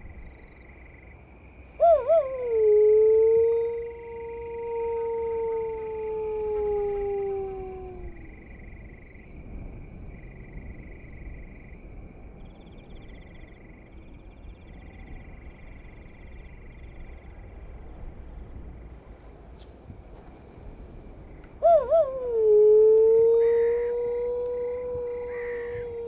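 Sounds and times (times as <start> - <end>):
man howling like a wolf: 1.8 - 8.4, 21.6 - 26.0.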